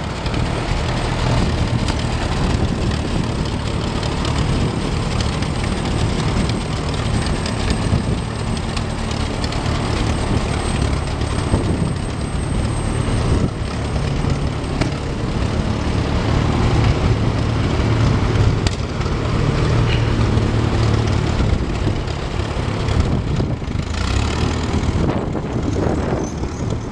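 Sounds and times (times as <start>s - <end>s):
tractor engine running: 0.0s - 26.9s.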